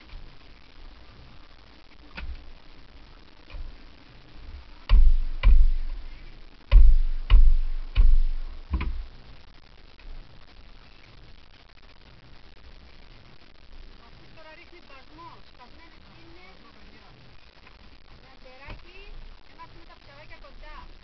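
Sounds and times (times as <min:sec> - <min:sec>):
heavy thumps on boat: 0:04.9 - 0:05.9, 0:06.7 - 0:09.1.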